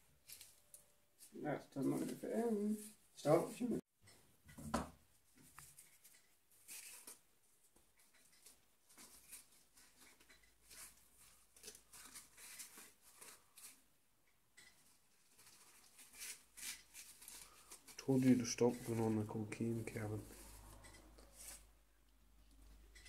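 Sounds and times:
crumpled paper crinkling: 0:08.4 - 0:13.8, 0:15.1 - 0:19.3.

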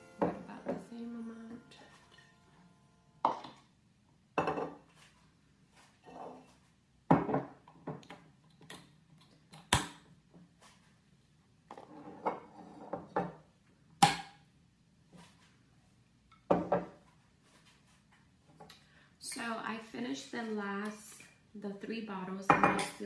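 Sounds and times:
glass bottles knocking on countertop: 0:04.4 - 0:04.8, 0:07.1 - 0:07.5.

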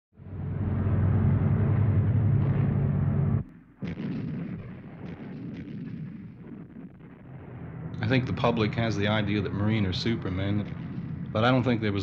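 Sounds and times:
landing craft engine drone: 0:00.2 - 0:03.5
gunfire and artillery blasts: 0:02.4 - 0:12.0.

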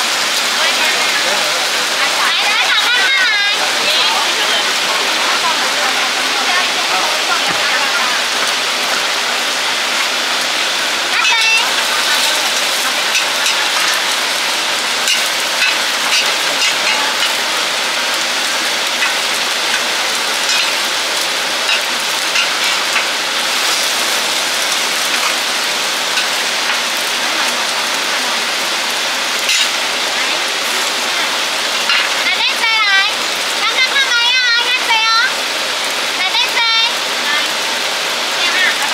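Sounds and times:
omelettes sizzling in oil: 0:00.0 - 0:38.9
metal spatulas scraping a griddle: 0:15.0 - 0:17.4, 0:20.5 - 0:20.9, 0:21.7 - 0:24.1, 0:29.5 - 0:29.7.

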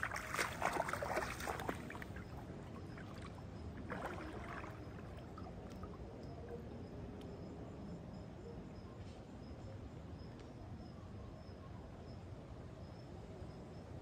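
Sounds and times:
footsteps splashing in shallow water: 0:00.0 - 0:06.0
faint river flow: 0:00.0 - 0:14.0.

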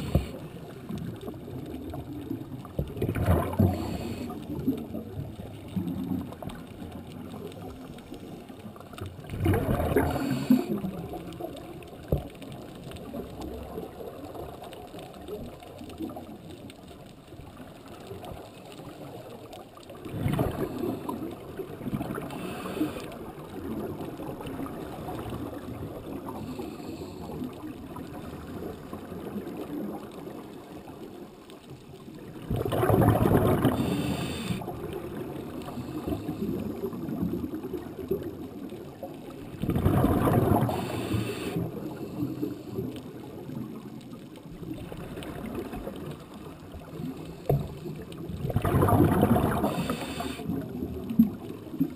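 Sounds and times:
underwater water noise: 0:00.0 - 0:51.9
regulator bubbles rushing: 0:00.8 - 0:07.7, 0:09.2 - 0:11.6, 0:32.4 - 0:34.1, 0:34.7 - 0:41.0, 0:44.6 - 0:50.0.

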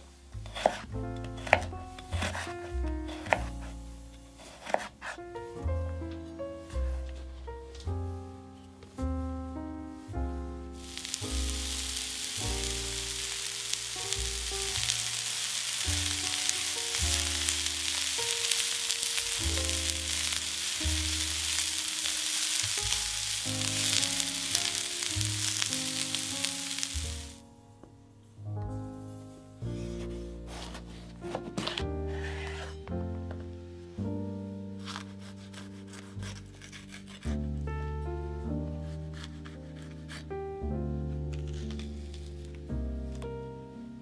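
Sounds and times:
food sizzling in hot oil: 0:10.8 - 0:27.4.

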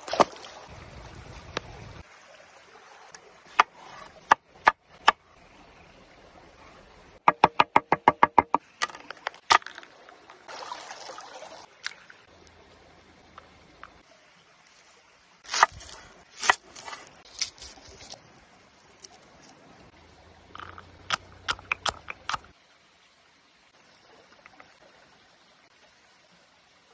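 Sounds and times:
dried chili crumbling rustle: 0:15.4 - 0:19.5.

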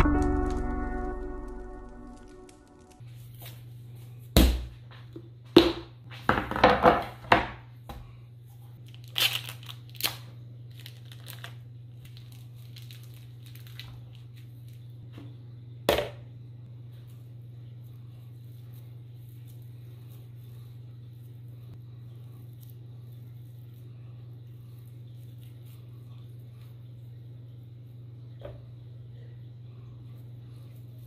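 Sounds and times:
steady low hum: 0:00.0 - 0:06.3, 0:07.1 - 0:31.0
plastic wrapping crinkling and tearing: 0:08.8 - 0:15.0.

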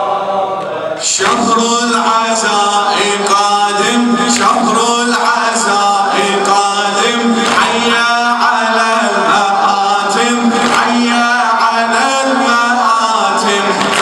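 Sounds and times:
man chanting into a microphone: 0:01.0 - 0:14.0.

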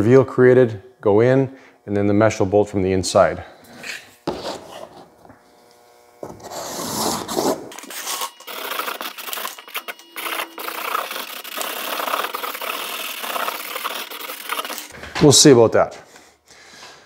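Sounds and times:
marker scratching on paper: 0:06.4 - 0:14.9.

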